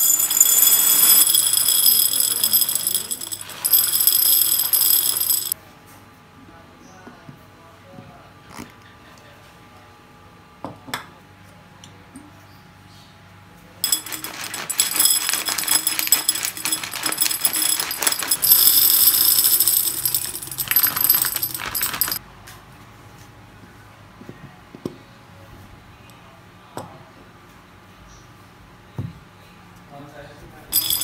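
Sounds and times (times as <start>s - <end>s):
macaroni rattling into glass jar: 0.0s - 5.6s, 13.8s - 22.2s, 30.8s - 31.0s.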